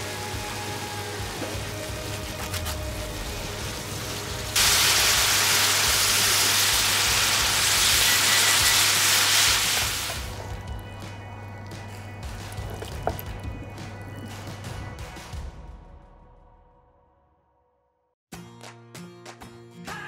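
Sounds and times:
food sizzling in a frying pan: 0.0 - 10.4.

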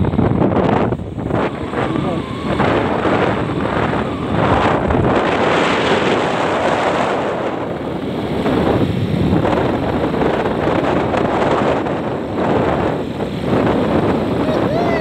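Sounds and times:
motorcycle running: 0.0 - 15.0
road noise: 0.0 - 15.0
wind rushing over microphone: 0.0 - 15.0.

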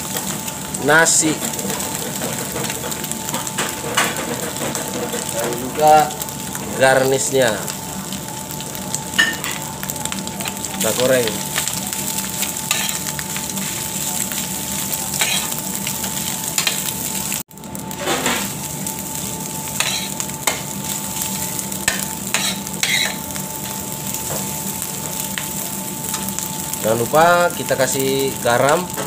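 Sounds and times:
rice sizzling in oil: 0.0 - 29.0
metal spoon scraping a pan: 12.7 - 13.0, 15.1 - 15.6, 19.8 - 20.6, 21.9 - 23.2.

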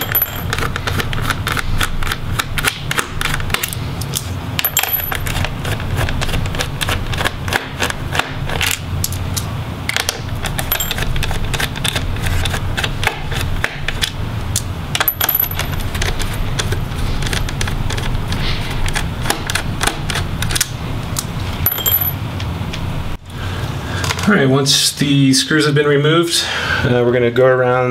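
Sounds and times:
screwdriver clicks and metallic clinks: 0.0 - 0.7, 4.6 - 5.4, 10.6 - 11.1, 21.7 - 22.2
steady low hum: 0.0 - 26.9.

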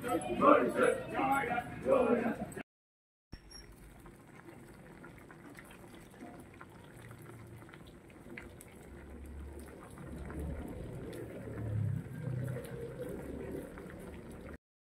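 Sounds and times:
water boiling in a pot: 3.4 - 14.6.

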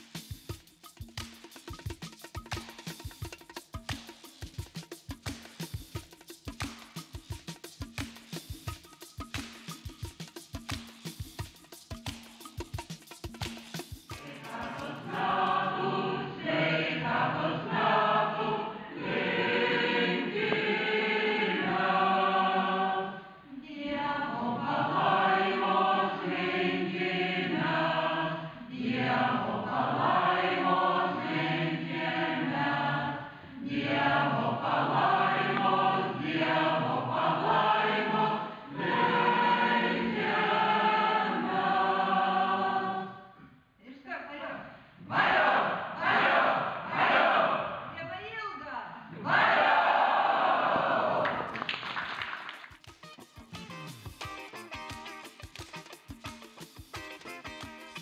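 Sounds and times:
mixed choir singing: 14.1 - 43.4, 45.0 - 47.9, 49.1 - 51.5.

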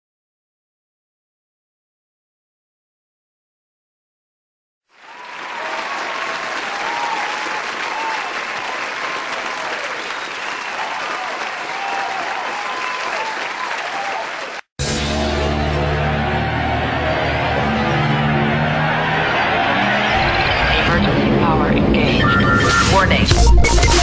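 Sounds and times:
crowd applauding and cheering: 4.9 - 21.3
music: 14.8 - 24.0.

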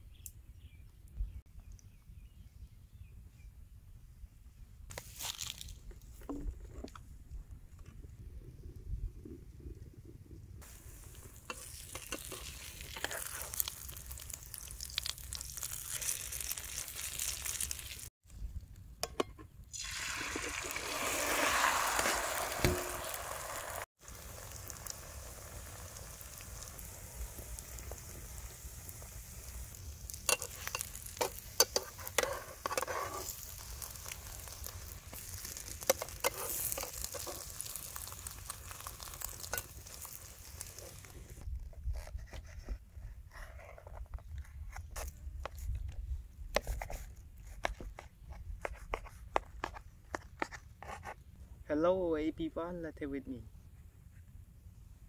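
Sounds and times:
food sizzling in a pan: 10.6 - 18.1, 19.8 - 41.4.

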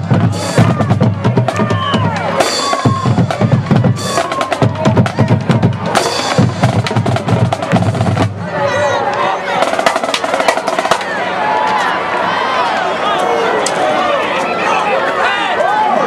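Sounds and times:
drumline playing: 0.0 - 11.3
crowd voices: 0.0 - 16.0.

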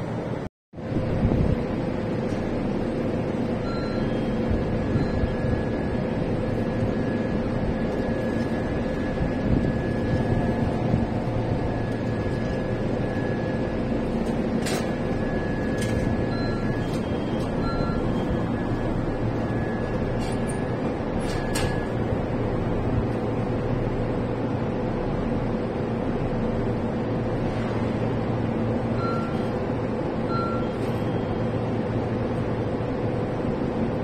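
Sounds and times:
steady mechanical hum: 0.0 - 34.0
short faint beeps: 3.6 - 5.9, 14.9 - 22.0, 28.9 - 29.6, 30.2 - 31.6.

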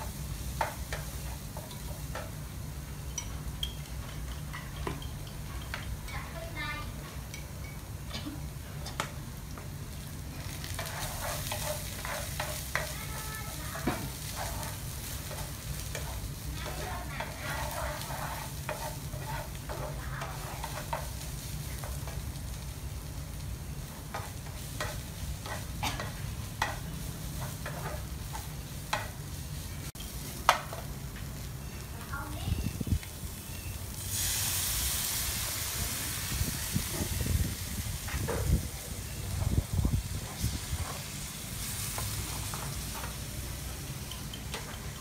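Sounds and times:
frying sizzle: 0.0 - 45.0
spatula scraping frying pan: 10.4 - 22.2.

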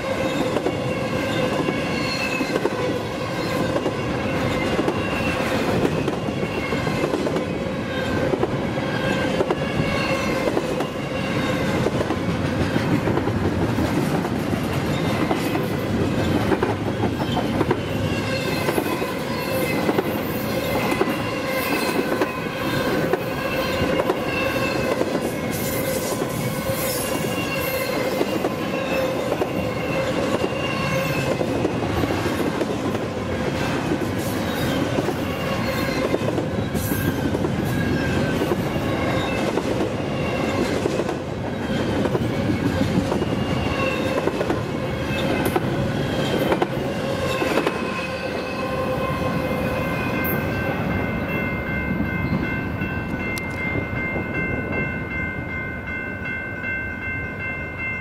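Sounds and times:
wheels squealing on rail: 0.0 - 7.2, 7.9 - 12.0, 14.8 - 32.3, 33.6 - 40.8, 41.5 - 51.4.

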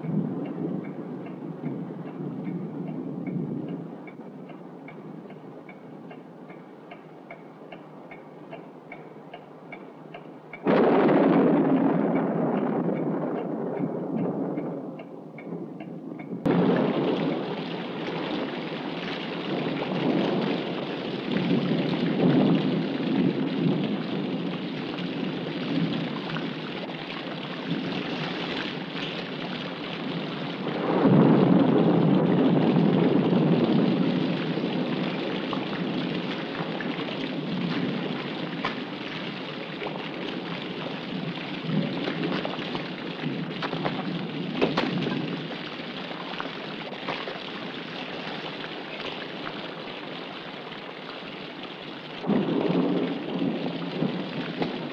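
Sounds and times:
thunder crash and rumble: 0.0 - 3.9, 10.6 - 47.8, 52.2 - 54.9
heavy rain pouring: 0.0 - 8.1, 8.7 - 54.9
soft regular ticking: 0.0 - 10.8, 12.0 - 16.5.

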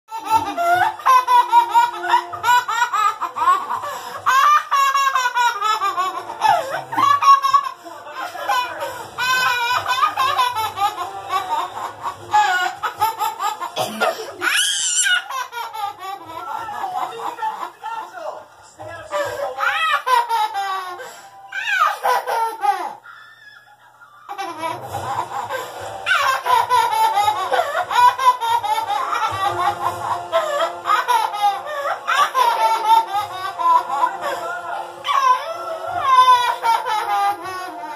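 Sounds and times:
girl laughing: 0.1 - 17.8
toddler laughing: 0.1 - 17.8, 19.1 - 34.4, 35.0 - 37.9.

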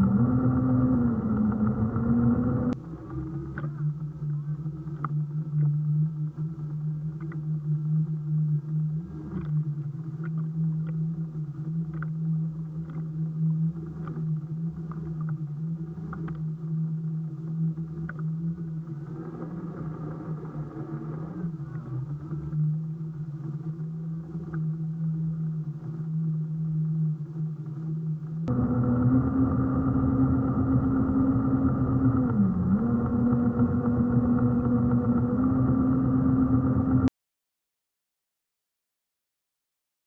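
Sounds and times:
electric boat motor humming: 0.0 - 37.1
bright whine: 15.7 - 37.1.

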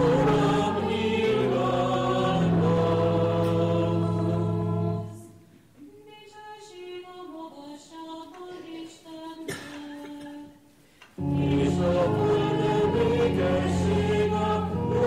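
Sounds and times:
choir singing with organ: 0.0 - 5.5, 11.2 - 15.0.

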